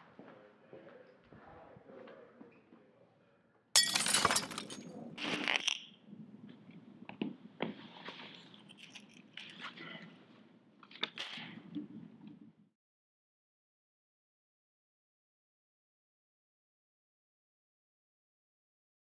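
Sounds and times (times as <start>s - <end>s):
glass clinks and knocks: 3.8s - 4.9s
glass crashing: 3.8s - 4.9s.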